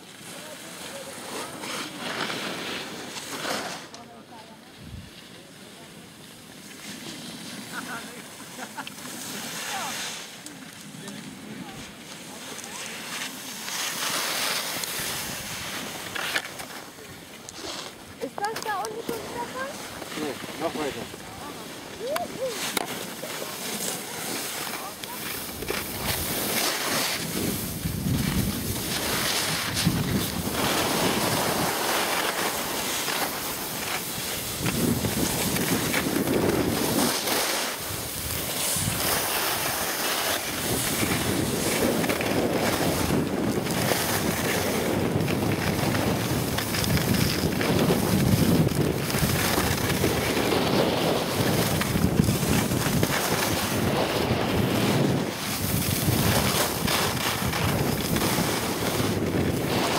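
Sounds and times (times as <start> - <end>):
skis scraping over snow: 0.0 - 59.9
wind rushing over microphone: 25.1 - 59.9.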